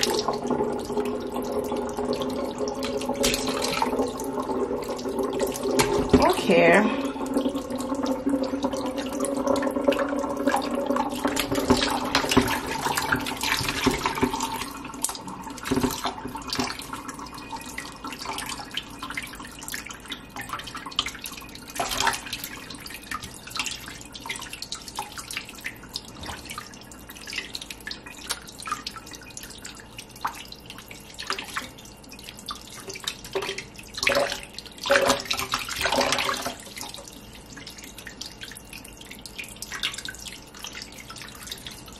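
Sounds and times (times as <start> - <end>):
steady hum: 0.0 - 41.9
water splashing: 1.1 - 8.8, 32.9 - 37.1
tap running into pot: 5.6 - 6.4, 11.2 - 16.8.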